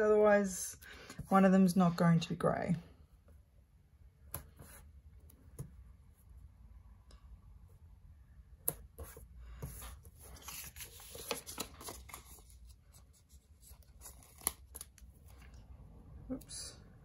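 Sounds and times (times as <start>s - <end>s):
paper stickers rustling and rubbing: 9.7s - 15.5s.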